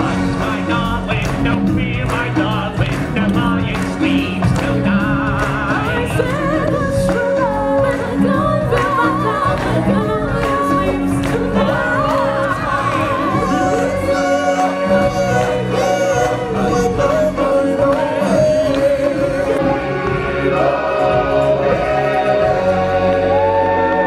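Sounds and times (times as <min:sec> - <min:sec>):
band accompaniment: 0:00.0 - 0:24.0
voices singing long notes: 0:04.8 - 0:24.0.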